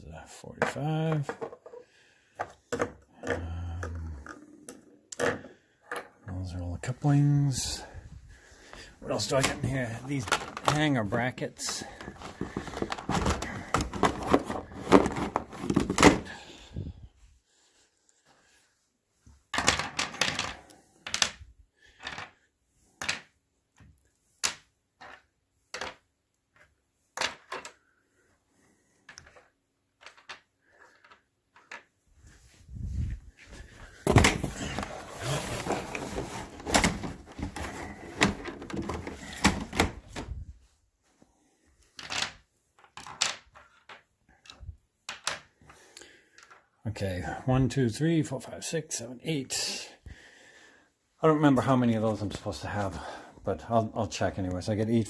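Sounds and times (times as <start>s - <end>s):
plastic parts clattering and rustling: 0.5s - 1.8s, 2.4s - 8.1s, 9.0s - 16.9s, 19.3s - 22.4s, 23.0s - 27.9s, 29.0s - 40.5s, 41.8s - 46.7s.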